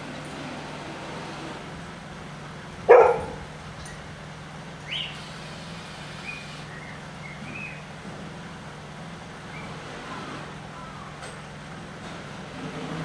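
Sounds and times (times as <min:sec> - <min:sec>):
low background hum: 0:00.0 - 0:12.4
dog barking loudly: 0:02.8 - 0:03.5.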